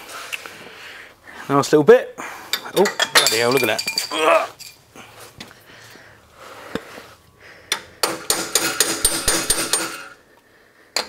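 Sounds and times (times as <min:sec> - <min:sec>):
hammer striking metal: 0:07.7 - 0:10.2.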